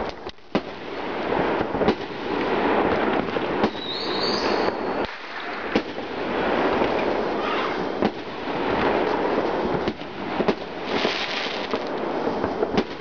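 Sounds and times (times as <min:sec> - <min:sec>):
firework bangs: 0:00.0 - 0:13.0
fireworks crackling: 0:00.0 - 0:13.0
high firework whistle: 0:03.6 - 0:05.7.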